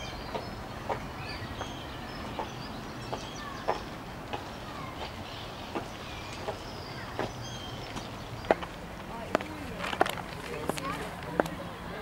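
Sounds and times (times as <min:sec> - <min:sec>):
birds chirping: 0:00.0 - 0:12.0
high heels clicking on pavement: 0:07.2 - 0:11.6.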